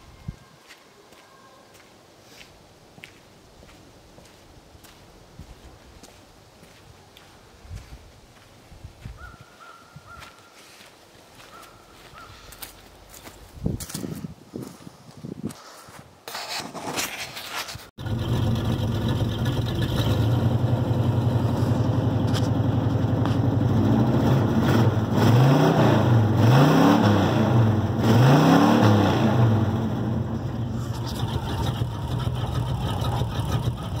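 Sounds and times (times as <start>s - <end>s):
truck engine idling and revving: 18.0s - 34.0s.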